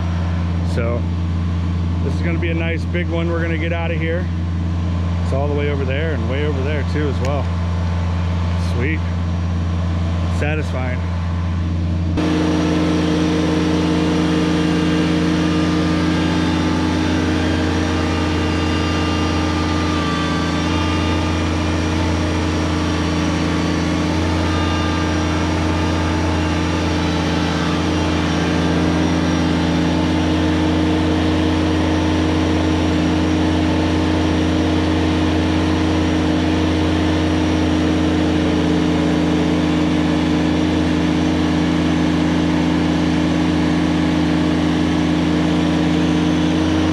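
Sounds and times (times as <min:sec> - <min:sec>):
tractor diesel engine running: 0:00.0 - 0:46.9.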